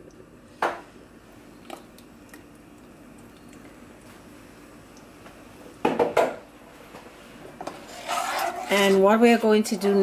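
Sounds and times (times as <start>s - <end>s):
wet puree sliding: 7.8s - 9.1s.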